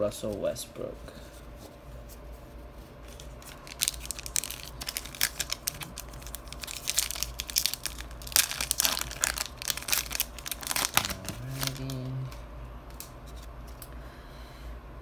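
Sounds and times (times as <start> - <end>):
foil wrapper crinkling and tearing: 3.0 - 12.3.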